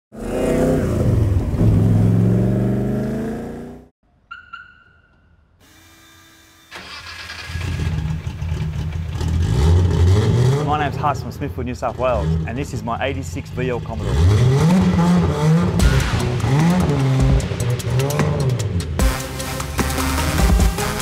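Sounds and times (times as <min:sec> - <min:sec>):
short electronic beeps: 0:04.3 - 0:05.4.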